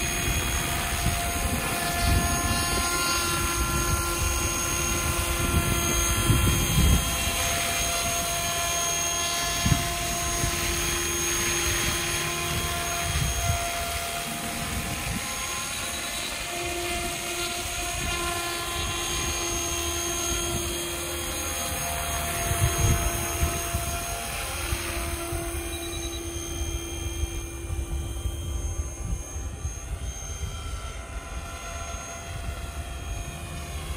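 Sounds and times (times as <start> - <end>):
model helicopter motor whine: 0.0 - 33.9.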